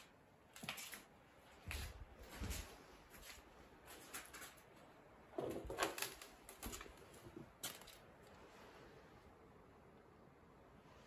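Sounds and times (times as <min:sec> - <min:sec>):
footsteps crunching debris: 0:00.5 - 0:04.8.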